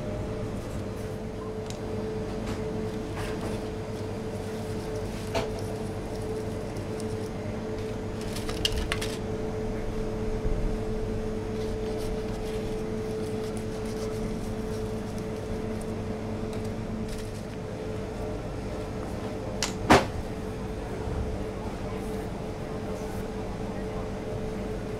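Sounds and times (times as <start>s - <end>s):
appliance hum: 0.0s - 24.9s.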